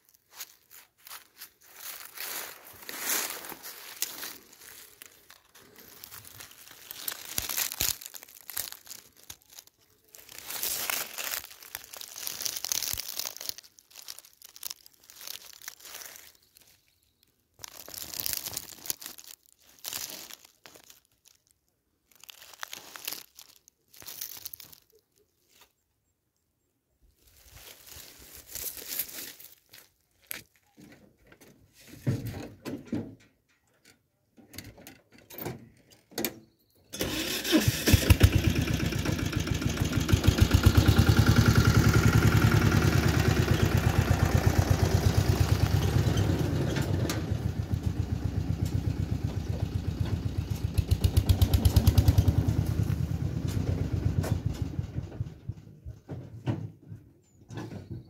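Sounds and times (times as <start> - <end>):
dry leaves and brush rustling: 0.0 - 25.8, 27.0 - 32.5, 37.0 - 55.3.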